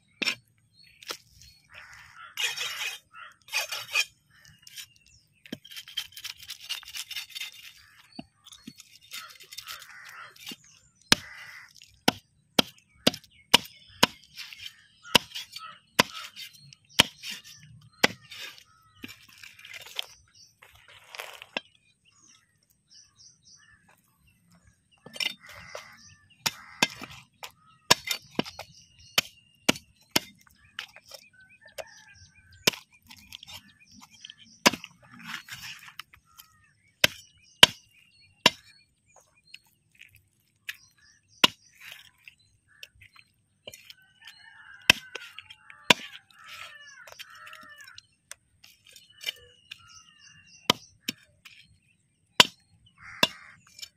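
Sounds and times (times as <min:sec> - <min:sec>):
knife scraping: 0:01.8 - 0:10.6
knife chopping into wood: 0:12.0 - 0:14.3, 0:15.1 - 0:18.4.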